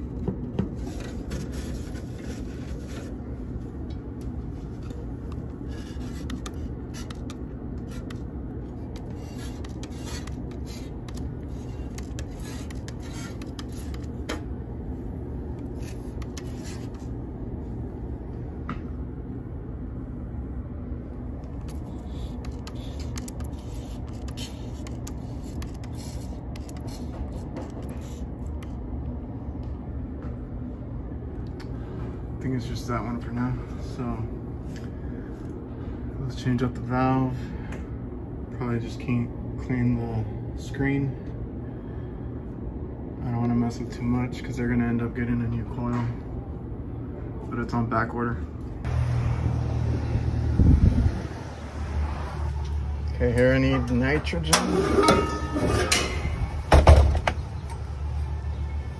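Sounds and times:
refrigeration equipment humming: 0.0s - 43.2s, 48.4s - 58.9s.

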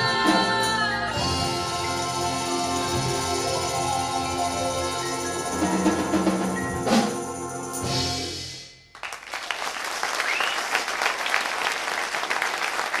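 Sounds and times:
percussion ensemble chord ringing: 0.0s - 9.4s
audience applause: 9.0s - 13.0s.

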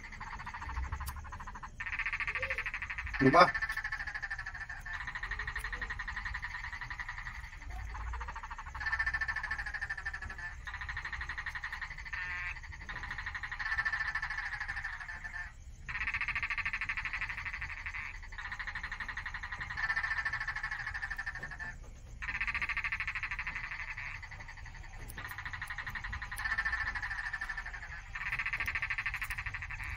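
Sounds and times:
animals calling in pulsed trills: 0.0s - 29.9s.

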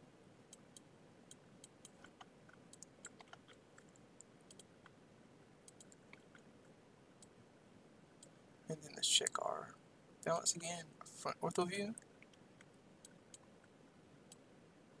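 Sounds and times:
computer mouse clicks: 0.5s - 5.0s, 5.6s - 6.5s, 12.0s - 14.4s.

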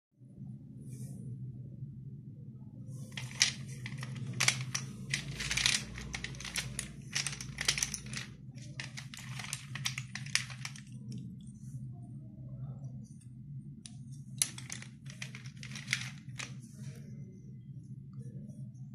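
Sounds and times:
slate pieces clattering on metal: 3.1s - 11.0s, 14.4s - 16.5s.

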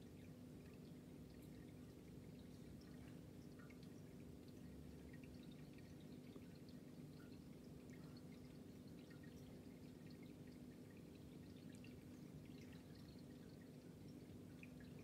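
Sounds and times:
aquarium filter humming: 0.0s - 15.0s
water drips and trickles: 0.0s - 15.0s.

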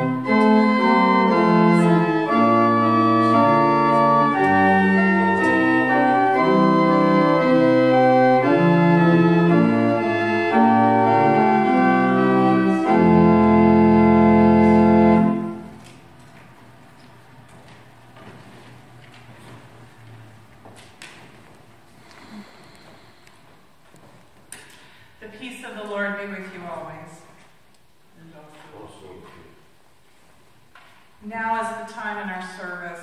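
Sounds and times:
church organ playing a hymn: 0.0s - 20.5s.

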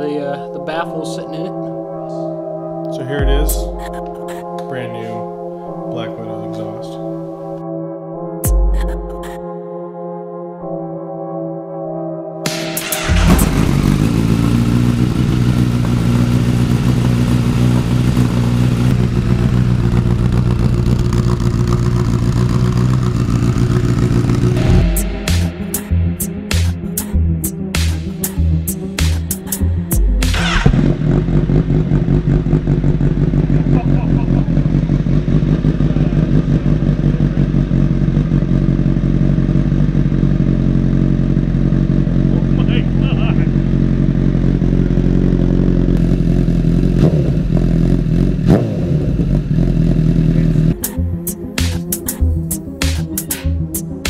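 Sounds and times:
music: 0.0s - 15.2s, 24.1s - 31.8s, 50.4s - 54.0s
motorcycle engine starting and idling: 12.5s - 25.6s, 30.0s - 52.8s.

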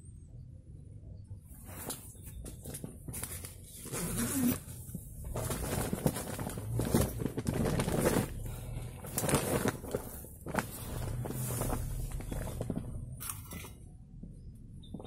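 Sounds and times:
tent fabric rustling: 1.6s - 13.6s.

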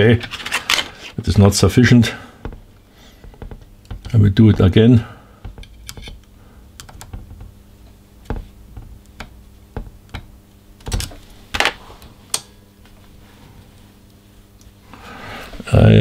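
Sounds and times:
faint steady hum: 0.0s - 16.0s
louder knocks: 2.4s - 6.2s, 8.2s - 11.1s
screwdrivers tapping on metal: 5.4s - 7.4s.

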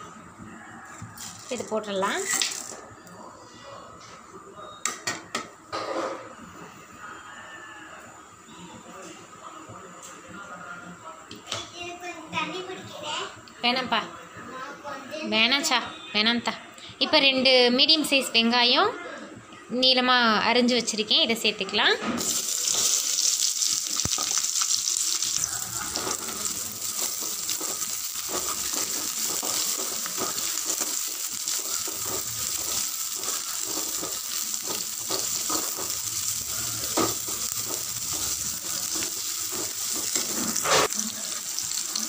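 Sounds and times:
metal spoon scraping a pan: 22.2s - 41.8s
onions sizzling in oil: 22.2s - 42.0s.

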